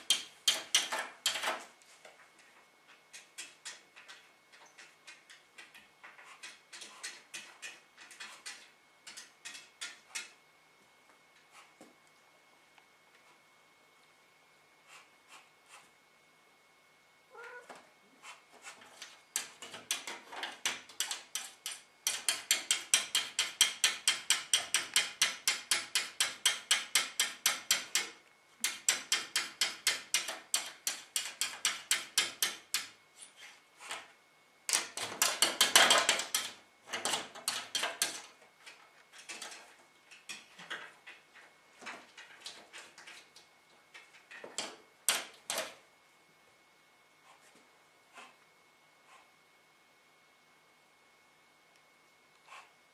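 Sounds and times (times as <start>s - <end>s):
cat chattering: 17.3s - 17.7s.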